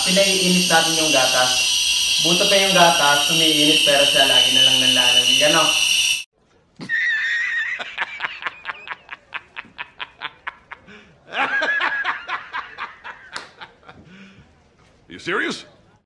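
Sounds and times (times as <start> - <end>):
man laughing hard: 6.8 - 14.1.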